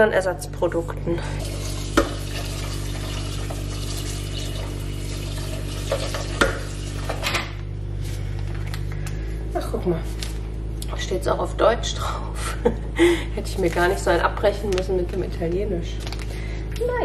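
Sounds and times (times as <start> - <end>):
tap water running into pot: 1.4 - 7.3.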